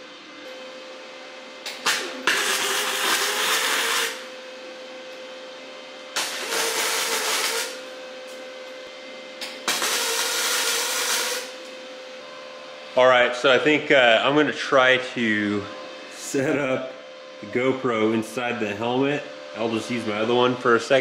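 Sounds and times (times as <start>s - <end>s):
steady hum: 0.0s - 21.0s
welding arc crackling: 1.6s - 4.3s, 6.1s - 7.9s, 9.4s - 11.7s.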